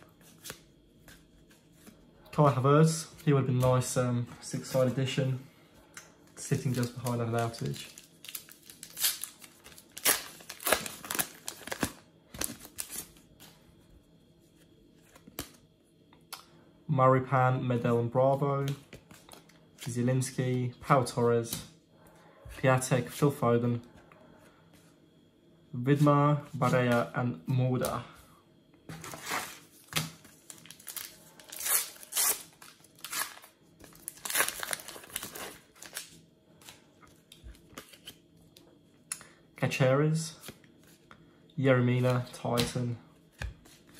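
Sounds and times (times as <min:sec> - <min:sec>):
cards rustling: 0:06.4 - 0:13.6
plastic packet crinkling and tearing: 0:06.5 - 0:13.1, 0:30.4 - 0:36.1.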